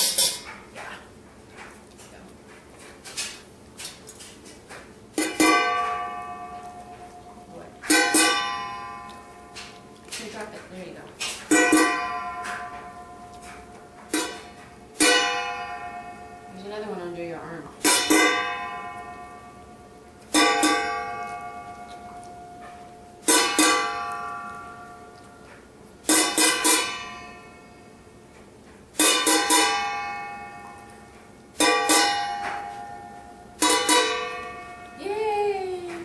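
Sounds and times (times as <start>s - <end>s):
metal spoon clanging on pot: 0.0s - 0.7s, 5.2s - 25.3s, 26.0s - 27.9s, 29.0s - 35.0s.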